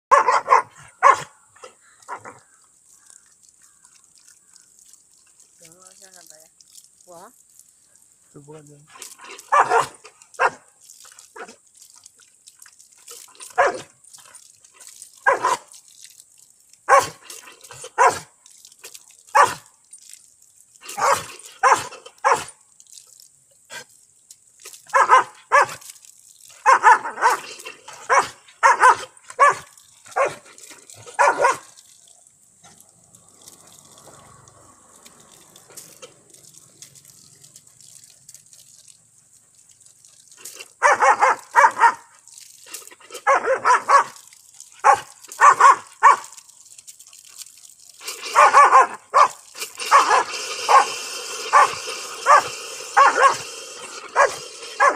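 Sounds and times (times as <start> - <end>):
dog barking: 0.1 - 1.4, 9.5 - 10.7, 13.5 - 13.9, 15.2 - 15.7, 16.9 - 17.2, 17.9 - 18.3, 19.3 - 19.6, 21.0 - 22.5, 24.9 - 25.8, 26.6 - 30.4, 31.1 - 31.7, 40.8 - 42.1, 43.2 - 44.2, 44.8 - 46.4, 48.3 - 53.5, 54.1 - 54.9
tap water running: 0.1 - 54.9.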